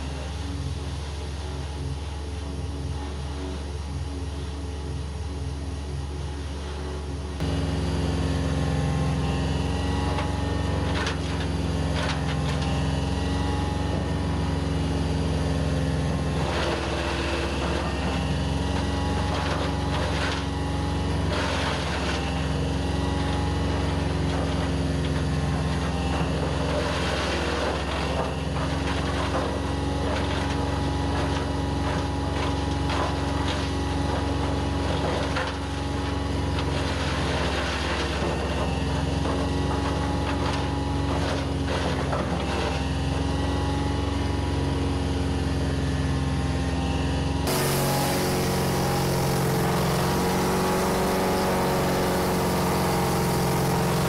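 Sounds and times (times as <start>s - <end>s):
wood chipper chipping branches: 7.4s - 46.0s, 47.3s - 54.0s
diesel engine humming: 47.5s - 54.0s.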